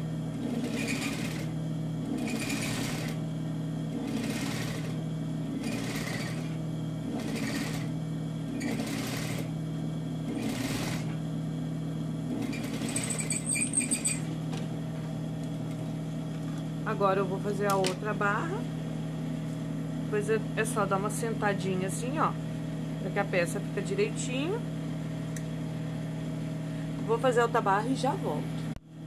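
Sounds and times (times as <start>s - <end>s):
sewing machine stitching: 0.4s - 1.5s, 2.1s - 3.2s, 4.0s - 7.9s, 8.6s - 9.5s, 10.3s - 11.1s, 12.3s - 14.3s.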